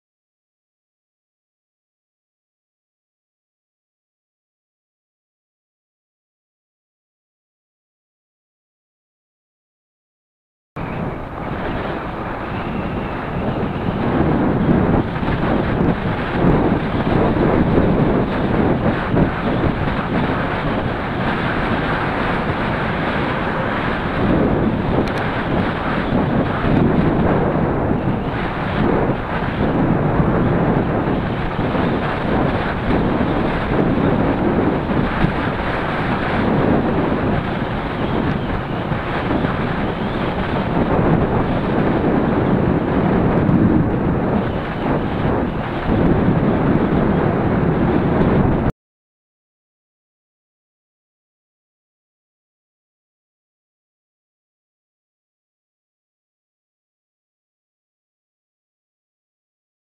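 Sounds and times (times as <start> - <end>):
bicycle tyre rumble on road: 10.8 - 48.7
wind rush on microphone: 10.8 - 48.8.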